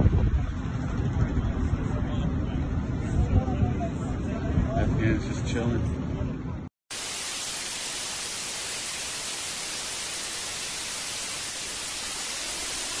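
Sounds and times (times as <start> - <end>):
tv static hiss: 6.9 - 13.0.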